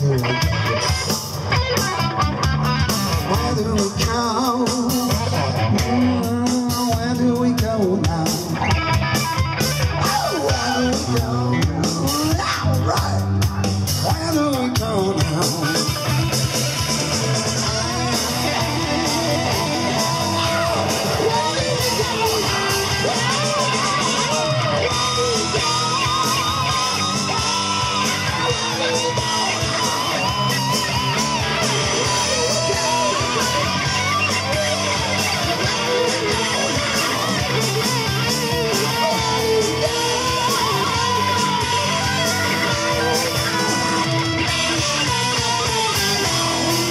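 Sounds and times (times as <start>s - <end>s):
bass guitar: 0.0s - 46.9s
drums: 0.0s - 46.9s
electric guitar: 0.0s - 46.9s
man singing into a microphone: 3.2s - 8.9s, 10.0s - 16.2s, 17.6s - 27.0s, 38.5s - 43.8s.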